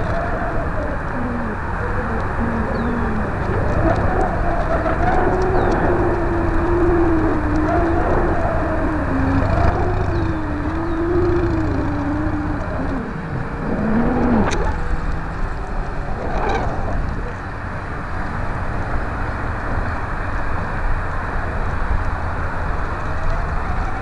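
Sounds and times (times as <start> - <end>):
wavering hum: 0.0 - 19.8
wind rushing over microphone: 0.0 - 24.0.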